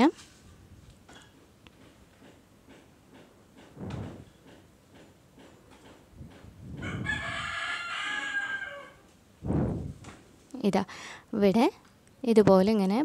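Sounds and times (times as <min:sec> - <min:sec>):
rooster crowing: 0:06.8 - 0:09.1.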